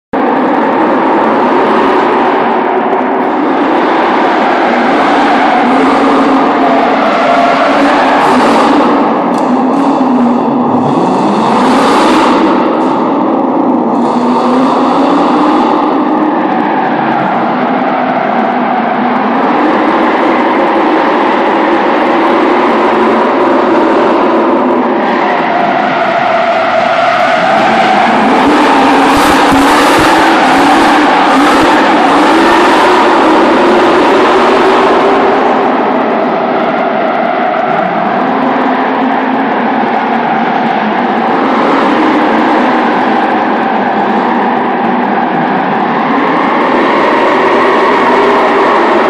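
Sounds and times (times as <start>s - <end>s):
car engine at high revs: 0.1s - 49.0s.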